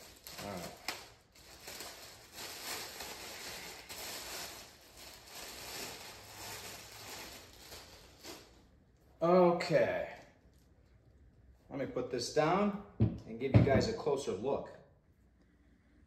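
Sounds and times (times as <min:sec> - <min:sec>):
plastic bag crinkling: 0:00.0 - 0:09.1.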